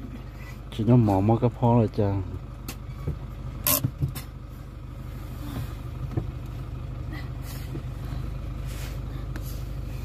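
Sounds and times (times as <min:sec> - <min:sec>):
truck engine and road noise: 0:00.0 - 0:10.0.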